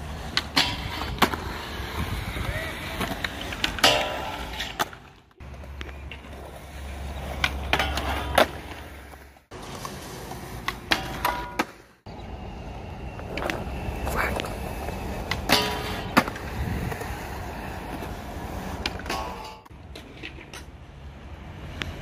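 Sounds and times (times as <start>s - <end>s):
skateboard wheels rolling on concrete: 0.0s - 22.0s
skateboard pops and landing clacks: 10.6s - 11.8s.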